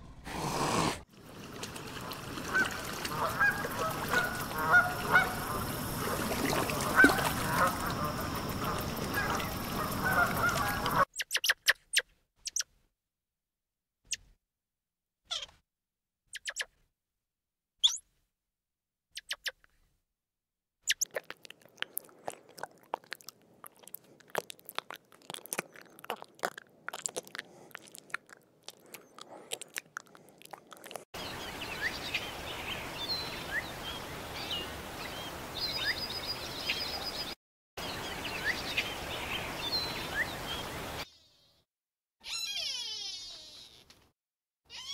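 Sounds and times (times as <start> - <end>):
small birds chirping: 6.7 - 12.7, 16.3 - 16.7, 20.9 - 41.6
animal crunching food: 20.9 - 31.0.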